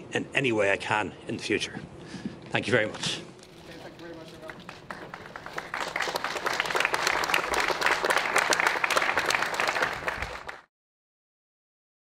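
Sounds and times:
people clapping: 3.6 - 10.7.

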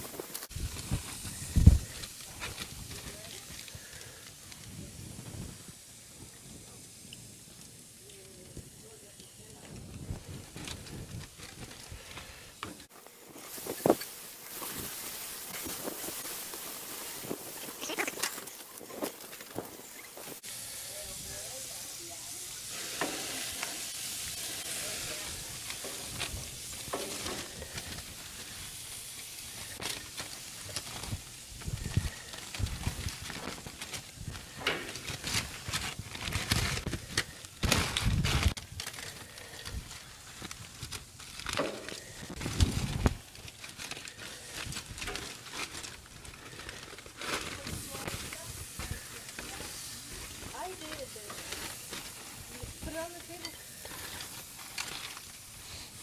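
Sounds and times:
aluminium foil crinkling: 0.0 - 56.0
meat sizzling on a grill: 0.0 - 56.0.

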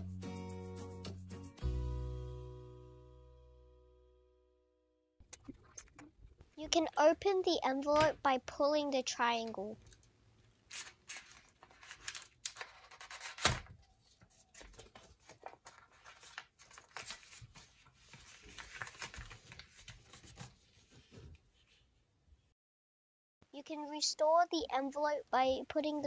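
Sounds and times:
paper rustling and crinkling: 10.7 - 21.8.

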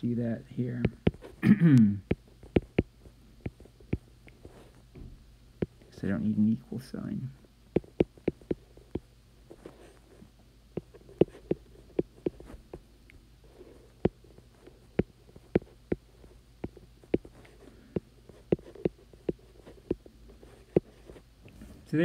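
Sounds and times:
faint low hum: 0.0 - 22.0
stylus tapping on glass screen: 7.8 - 9.1.

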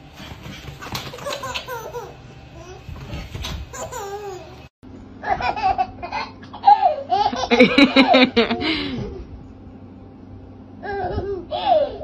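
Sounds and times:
baby laughing and squealing: 3.7 - 4.6.

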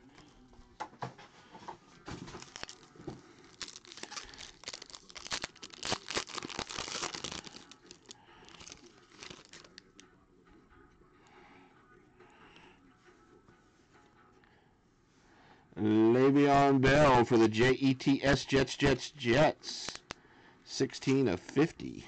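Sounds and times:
foil pack tearing and crinkling: 2.3 - 9.8.

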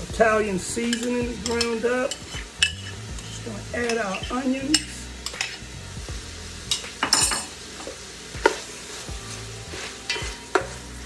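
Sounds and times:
frying sizzle: 0.0 - 11.0
spatula scraping pot: 0.9 - 5.6
utensils knocking against pot: 6.7 - 8.6.

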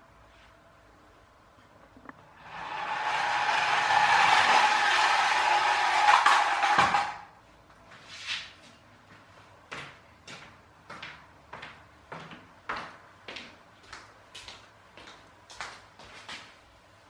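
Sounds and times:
clockwork toy car whirring: 2.4 - 7.2.

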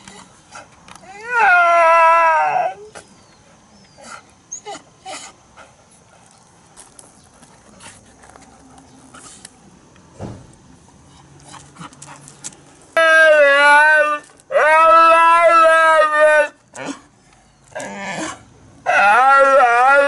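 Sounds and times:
dog howling call: 1.0 - 3.0, 13.0 - 16.6, 18.8 - 20.0.

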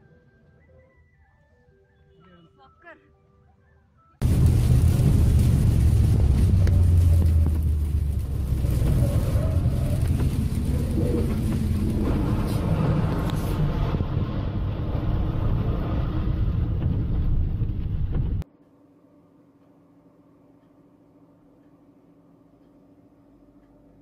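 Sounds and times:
tyres on wet road: 4.2 - 18.4
vehicle engine rumble: 4.2 - 18.4.

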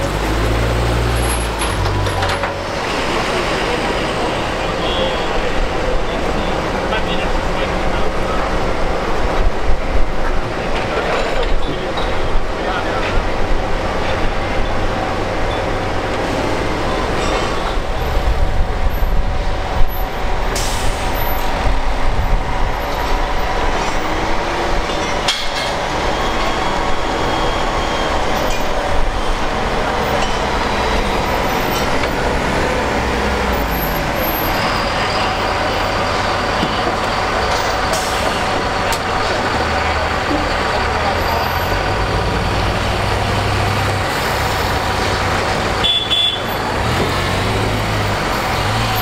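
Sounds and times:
diesel engine rumbling: 0.0 - 49.0
metallic knocks and clanks: 24.8 - 26.6.

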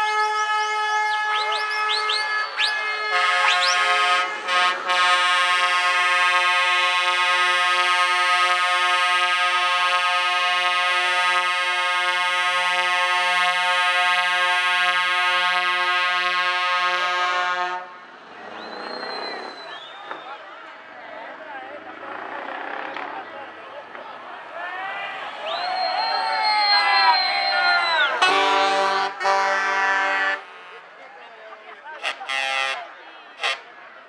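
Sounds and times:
truck air horn chord: 2.9 - 18.0, 28.2 - 30.8, 32.0 - 32.8.

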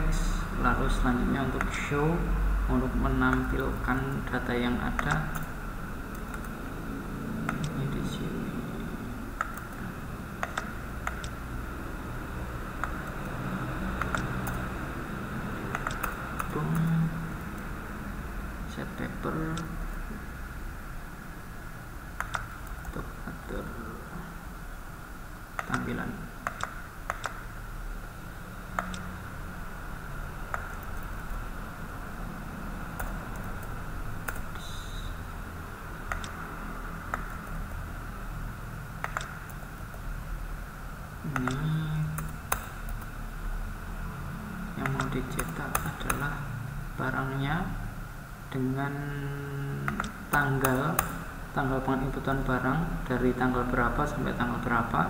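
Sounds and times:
low hum: 0.0 - 55.0
keyboard and mouse clicks: 1.4 - 1.9, 3.2 - 5.5, 6.1 - 6.6, 7.4 - 7.9, 9.4 - 11.4, 12.8 - 14.7, 15.7 - 17.7, 19.5 - 19.8, 22.2 - 23.0, 25.6 - 27.6, 28.7 - 29.2, 30.5 - 31.4, 33.0 - 34.9, 36.0 - 37.8, 39.0 - 40.1, 41.3 - 43.1, 44.8 - 46.4, 49.8 - 51.2.

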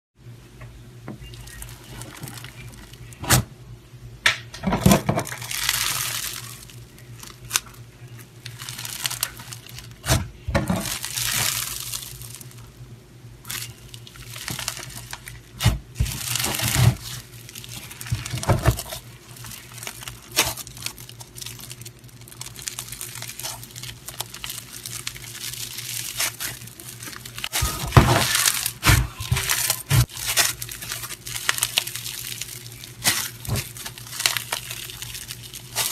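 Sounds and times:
foam bead slime crackling: 1.2 - 3.2, 5.3 - 12.8, 13.4 - 35.9.

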